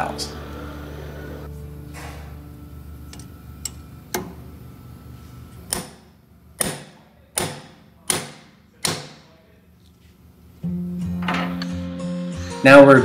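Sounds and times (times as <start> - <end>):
hammer striking steel driver: 5.7 - 9.3.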